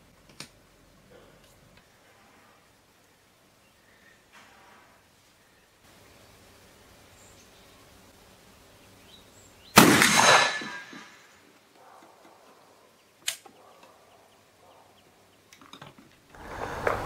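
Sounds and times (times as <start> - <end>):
rifle shot boom: 9.8 - 11.2
short sharp crack: 9.8 - 11.2.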